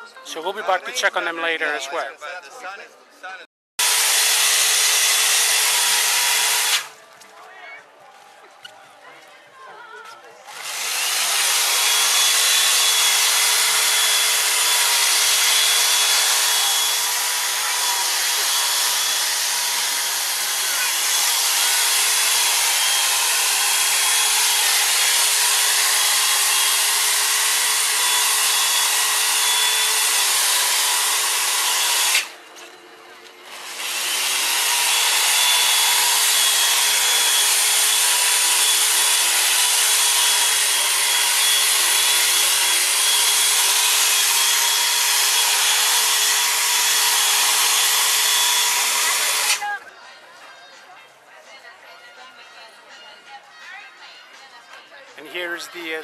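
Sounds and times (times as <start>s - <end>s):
power tool cutting ice: 3.8s - 7.0s, 10.5s - 32.6s, 33.4s - 49.8s.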